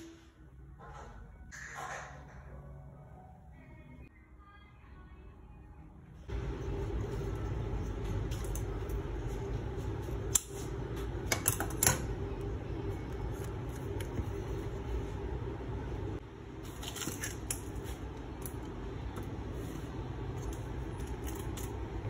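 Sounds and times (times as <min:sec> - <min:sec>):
steady low hum: 0:05.0 - 0:22.0.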